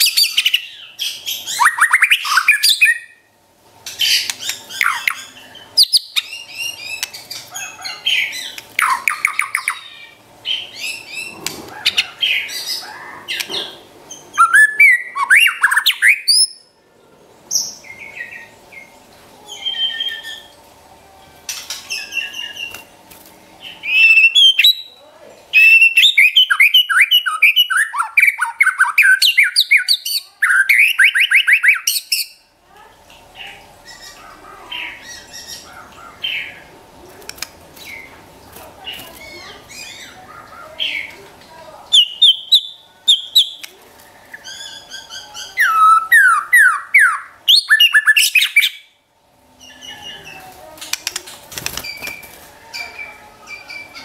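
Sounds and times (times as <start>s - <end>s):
bird singing whistled phrases: 14.4s - 16.6s, 25.6s - 32.4s, 44.3s - 48.9s.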